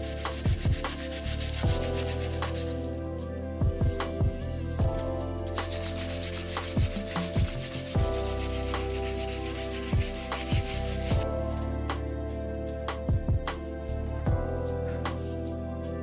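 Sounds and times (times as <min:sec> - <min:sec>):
sandpaper rasping on wood: 0:00.0 - 0:02.9, 0:05.5 - 0:11.2
background music with bass beats: 0:00.0 - 0:16.0.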